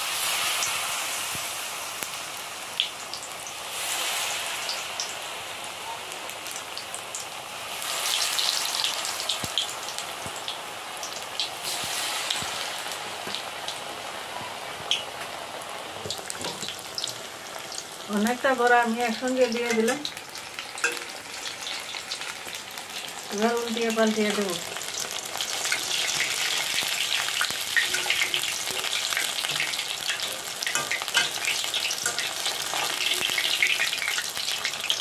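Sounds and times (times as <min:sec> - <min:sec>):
deep-frying sizzle with crackling pops: 0:00.0 - 0:35.0.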